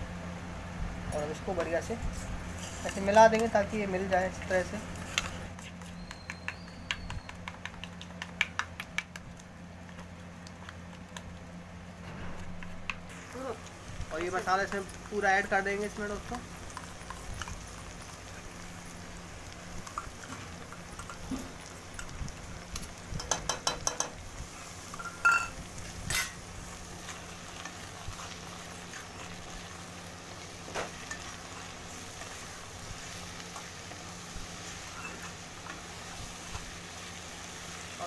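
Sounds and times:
vegetables sizzling in a pan: 0:01.4 - 0:05.5, 0:11.7 - 0:38.0
spatula stirring a pan: 0:02.4 - 0:03.4, 0:05.0 - 0:38.0
spoon scraping and tapping steel bowl: 0:23.2 - 0:24.2.

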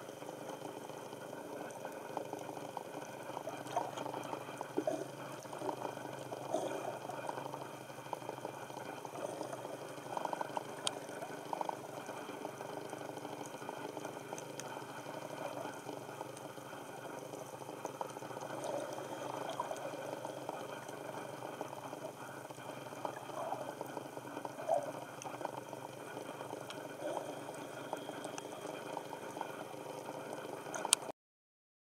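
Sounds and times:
underwater water noise: 0:00.0 - 0:31.1
faint clicks: 0:09.9 - 0:11.8, 0:13.4 - 0:16.6, 0:22.5 - 0:31.1.

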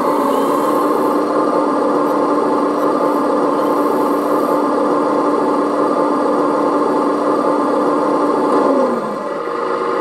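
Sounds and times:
hydraulic pump whining: 0:00.0 - 0:06.2.

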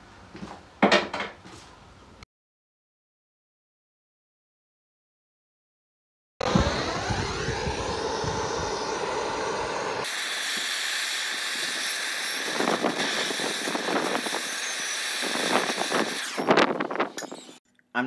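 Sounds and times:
blowtorch flame hissing: 0:06.4 - 0:17.1.

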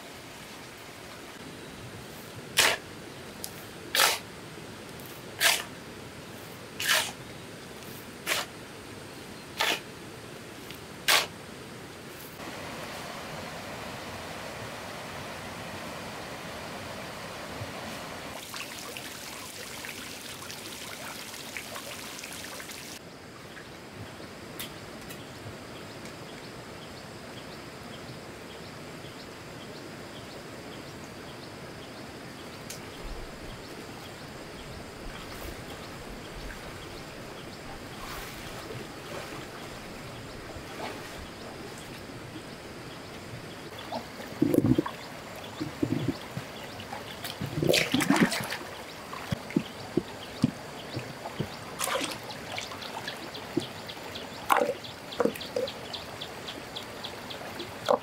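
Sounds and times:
stream running: 0:12.4 - 0:23.1, 0:33.0 - 0:58.0
splashing and sloshing in water: 0:35.2 - 0:42.1, 0:43.8 - 0:55.7.

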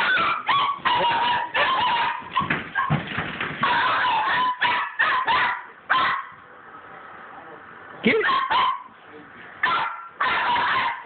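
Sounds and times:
small dog yapping: 0:00.0 - 0:03.0, 0:03.6 - 0:06.4, 0:08.1 - 0:08.9, 0:09.6 - 0:11.0.

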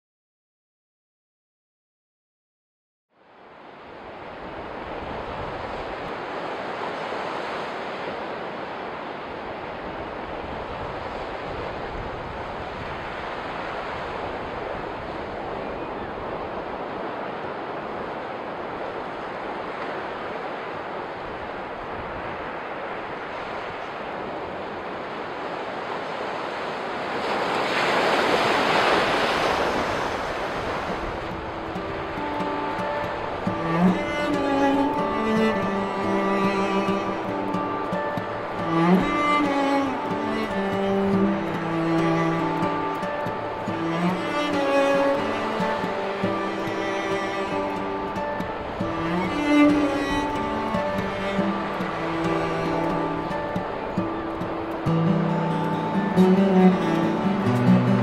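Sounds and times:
waves washing onto a beach: 0:03.2 - 0:58.0
bowed cello music: 0:31.5 - 0:58.0.

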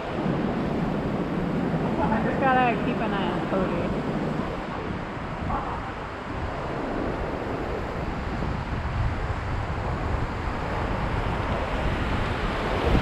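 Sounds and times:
whitewater rushing: 0:00.0 - 0:08.2
wind rumbling on microphone: 0:00.0 - 0:13.0.

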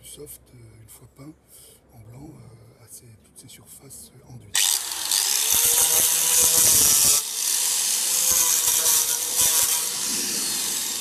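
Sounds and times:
angle grinder sanding filler: 0:04.6 - 0:11.0.

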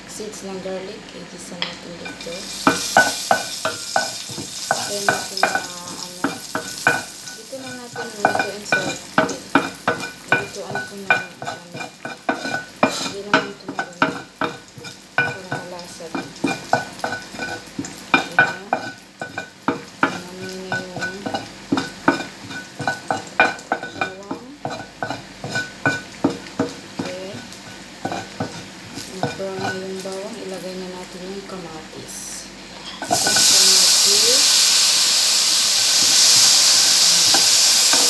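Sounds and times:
spatula scraping frying pan: 0:02.0 - 0:30.1
garlic sizzling in oil: 0:02.0 - 0:31.9, 0:32.5 - 0:38.0.

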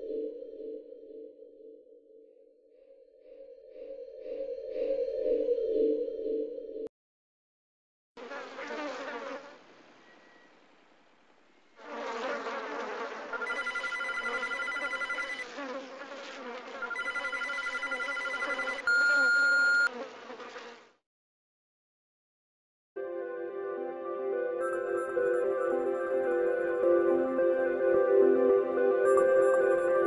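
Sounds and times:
buzzing: 0:11.8 - 0:20.9
loud steady beep: 0:13.4 - 0:15.4, 0:16.9 - 0:19.9
pulsed electronic ringing: 0:13.4 - 0:15.4, 0:16.9 - 0:19.9.

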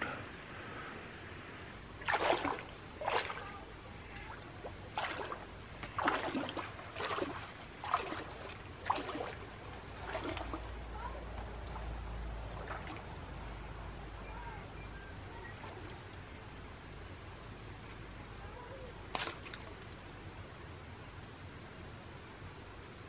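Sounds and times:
wading through shallow water: 0:01.7 - 0:17.3.

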